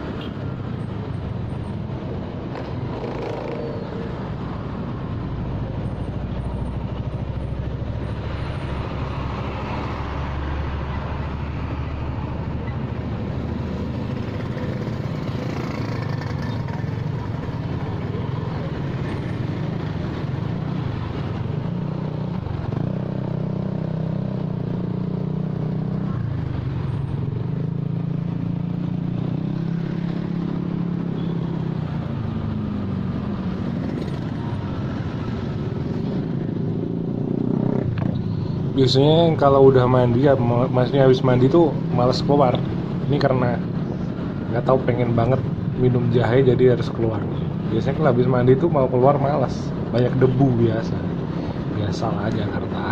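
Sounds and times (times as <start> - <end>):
road traffic noise: 0.0 - 52.9
motorcycle engine revving: 2.4 - 4.2, 13.7 - 17.8, 19.5 - 39.1.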